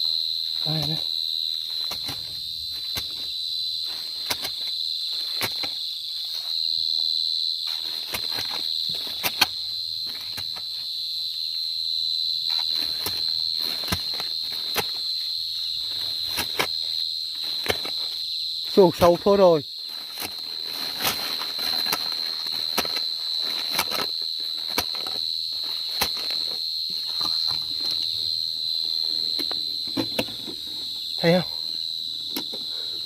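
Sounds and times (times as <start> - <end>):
crickets trilling: 0.0 - 33.0
hoe digging into soil: 20.0 - 28.0.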